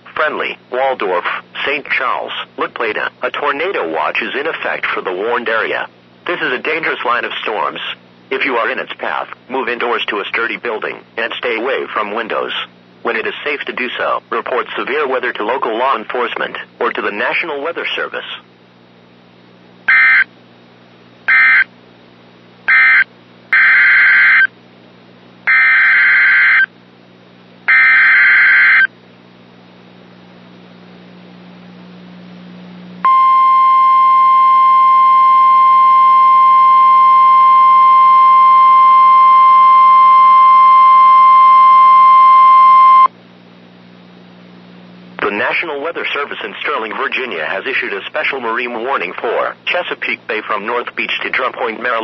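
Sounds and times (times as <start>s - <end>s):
loud steady alert tone: 19.9s - 20.2s, 21.3s - 21.7s, 22.7s - 23.0s, 23.6s - 24.5s, 25.5s - 26.7s, 27.7s - 28.9s.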